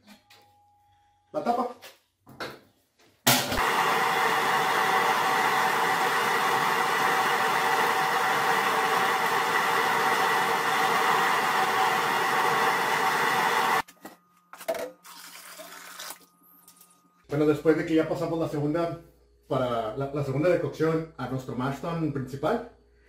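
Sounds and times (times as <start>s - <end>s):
gas burner roaring: 3.3s - 13.8s.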